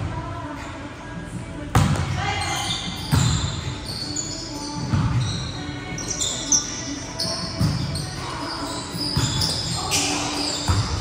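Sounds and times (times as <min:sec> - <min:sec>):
volleyball struck with thumps: 0:01.7 - 0:02.2
sneakers squeaking on gym floor: 0:01.8 - 0:11.0.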